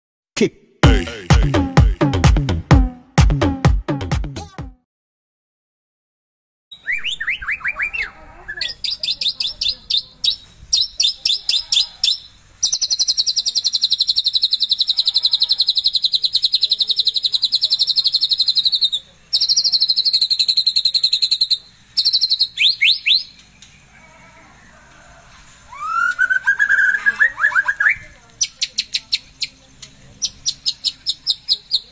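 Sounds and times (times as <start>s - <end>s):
songbird whistles and trills: 6.7s - 15.0s, 15.6s - 23.8s, 25.7s - 29.6s.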